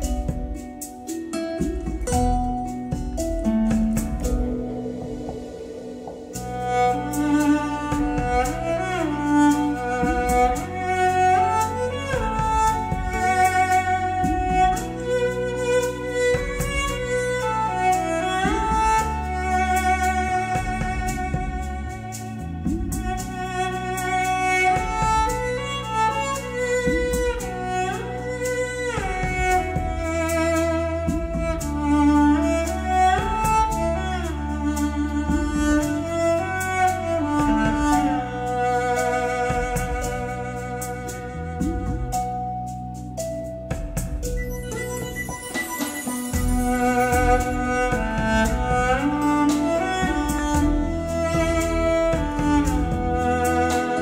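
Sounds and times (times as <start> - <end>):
low accompaniment: 0.0 - 54.0
slow bowed string melody: 0.0 - 54.0
drum hits: 1.6 - 10.9, 11.7 - 15.3, 16.2 - 17.6, 18.4 - 19.4, 20.0 - 25.8, 26.8 - 27.7, 29.0 - 32.0, 33.2 - 34.0, 35.3 - 36.0, 37.4 - 38.2, 39.3 - 40.4, 41.6 - 42.4, 43.7 - 44.5, 45.3 - 54.0
deep bass line: 1.7 - 45.4, 46.4 - 54.0.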